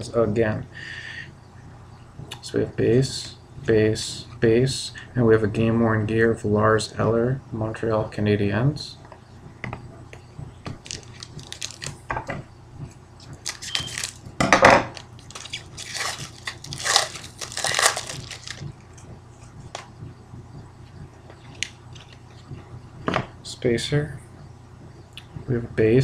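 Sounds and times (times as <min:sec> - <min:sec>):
cards being handled: 0:10.7 - 0:12.0, 0:13.2 - 0:14.3, 0:14.9 - 0:19.9, 0:21.4 - 0:22.4
foil wrapper tearing and crinkling: 0:10.8 - 0:12.0, 0:13.3 - 0:14.3, 0:14.9 - 0:18.7.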